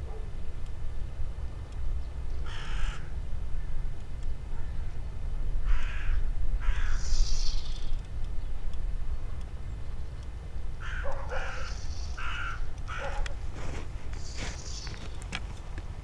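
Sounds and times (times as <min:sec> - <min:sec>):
steady low rumble: 0:00.0 - 0:16.0
crows cawing: 0:02.4 - 0:03.2, 0:05.6 - 0:07.6, 0:10.8 - 0:13.4.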